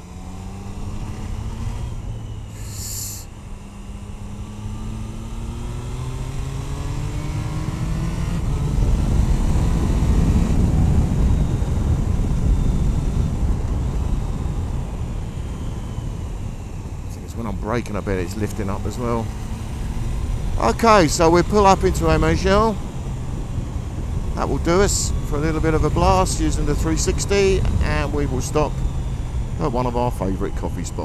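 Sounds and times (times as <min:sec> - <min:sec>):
motorcycle engine accelerating: 0:00.0 - 0:31.0
brief hiss: 0:02.6 - 0:03.3.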